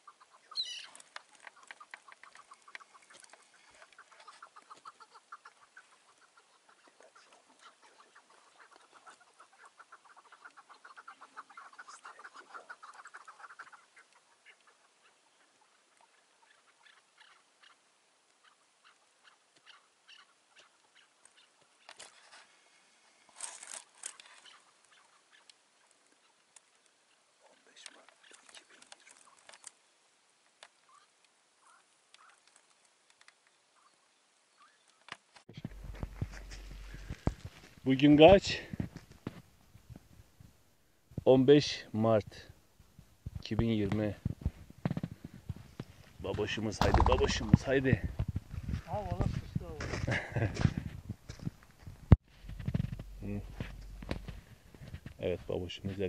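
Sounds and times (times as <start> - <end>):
partridge clucking call: 0.0 - 15.5, 46.7 - 47.7.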